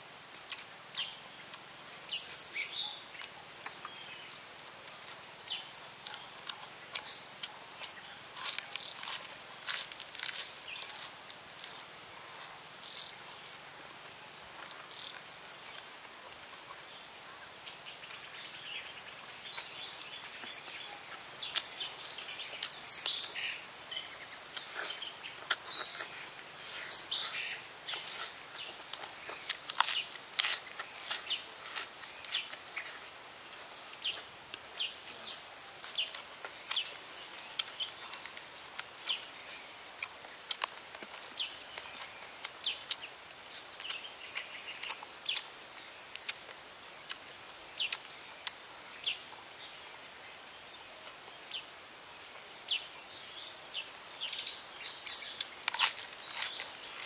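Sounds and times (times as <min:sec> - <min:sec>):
fried ribs chewed: 0:03.2 - 0:13.4, 0:24.4 - 0:33.0, 0:35.8 - 0:39.2, 0:39.8 - 0:48.6, 0:55.2 - 0:57.0
lettuce crunching: 0:06.0 - 0:12.5, 0:24.4 - 0:33.1, 0:35.8 - 0:39.2, 0:39.9 - 0:47.2, 0:55.2 - 0:57.0.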